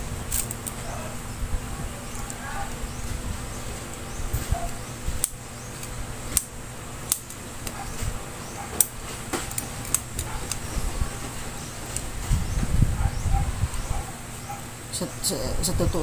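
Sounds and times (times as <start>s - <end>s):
handling noise: 0.0s - 14.9s
lancing pen plastic clicks: 7.1s - 7.8s.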